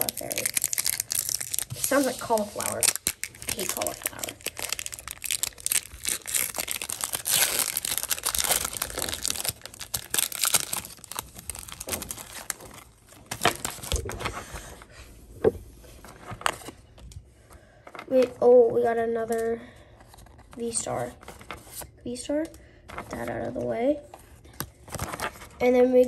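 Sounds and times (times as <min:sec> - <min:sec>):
foil wrapper crinkling and tearing: 0:00.0 - 0:14.2.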